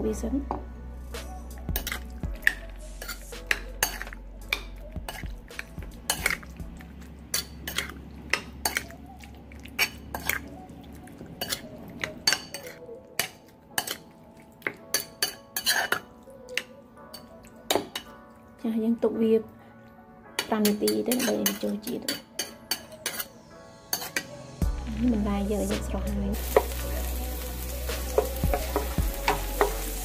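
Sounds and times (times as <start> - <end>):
metal spoon scraping ceramic bowl: 15.0 - 16.0.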